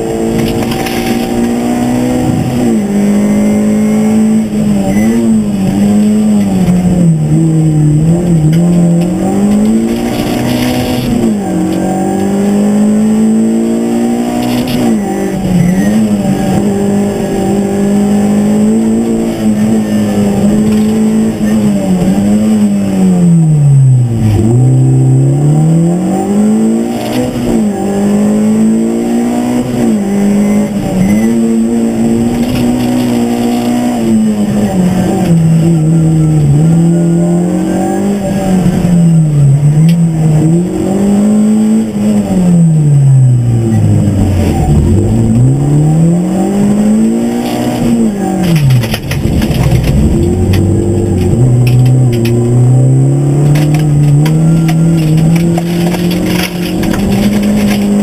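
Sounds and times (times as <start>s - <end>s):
rally car engine revving: 0.0s - 58.0s.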